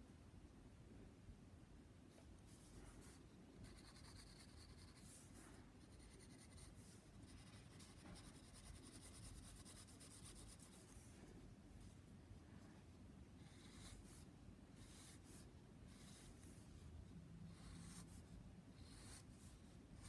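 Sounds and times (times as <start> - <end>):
pencil scratching on paper: 2.6 - 11.1, 13.4 - 16.6, 17.5 - 20.0.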